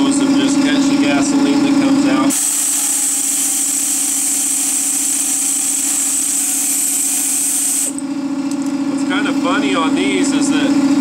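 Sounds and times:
steady low hum: 0.0s - 11.0s
air ratchet running: 2.3s - 8.0s.

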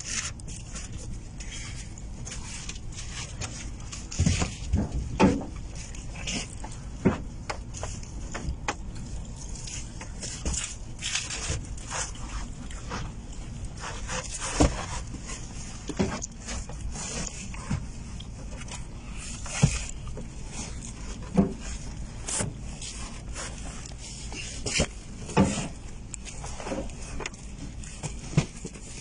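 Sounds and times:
steady low hum: 0.0s - 29.0s
sharp knocks and thumps: 3.4s - 5.6s
cardboard boxes scraping: 9.6s - 18.1s, 18.8s - 29.0s.

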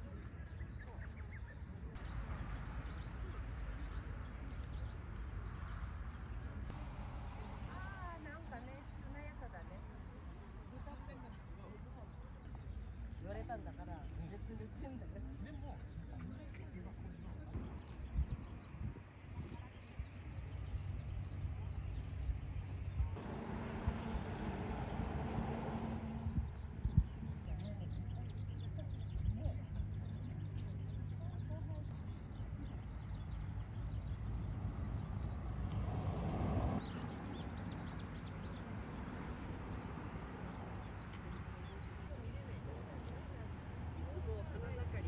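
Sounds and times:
small birds chirping: 0.0s - 45.0s
low outdoor rumble: 1.6s - 10.7s, 17.0s - 40.9s.

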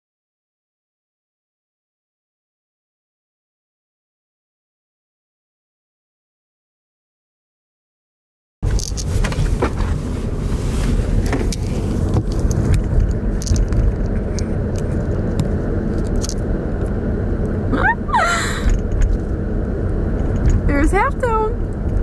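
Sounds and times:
vehicle road and engine rumble: 8.6s - 22.0s.

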